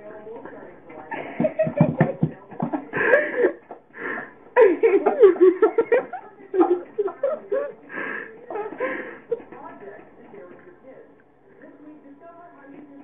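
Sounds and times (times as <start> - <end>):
people laughing: 0.9 - 9.8.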